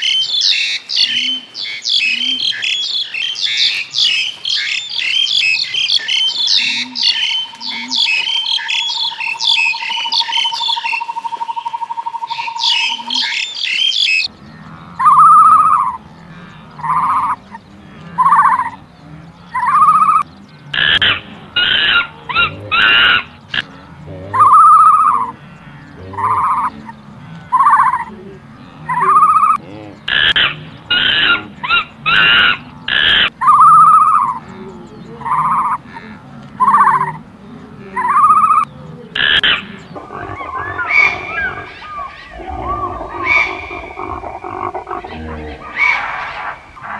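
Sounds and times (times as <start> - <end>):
rapid bird chirping: 0.0 - 28.2, 28.8 - 35.9, 36.6 - 37.2, 38.0 - 46.9
loud harsh animal calls: 12.3 - 37.2, 37.8 - 46.9.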